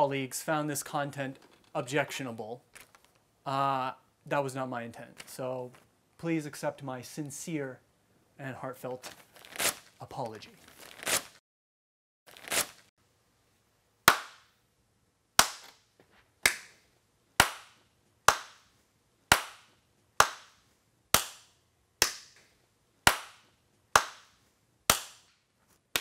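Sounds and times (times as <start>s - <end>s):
person clapping slowly: 17.4s - 18.6s, 19.3s - 20.6s.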